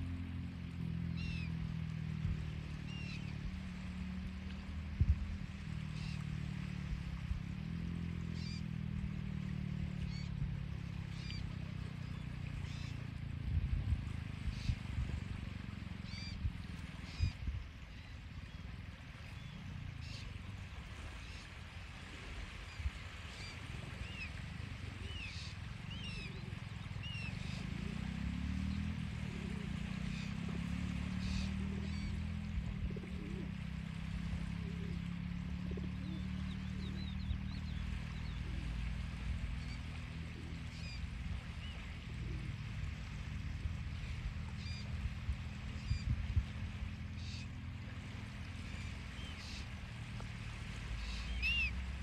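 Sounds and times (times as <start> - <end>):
low engine hum: 0.0 - 52.0
small birds chirping: 1.1 - 1.6, 11.0 - 13.0, 25.0 - 33.8, 48.7 - 49.8, 50.8 - 51.8
short high bird calls: 51.0 - 51.8.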